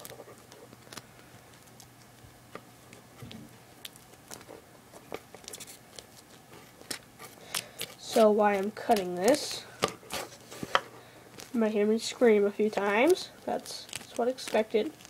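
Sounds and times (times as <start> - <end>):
scissors cutting duct tape: 6.8 - 10.8, 12.7 - 15.0.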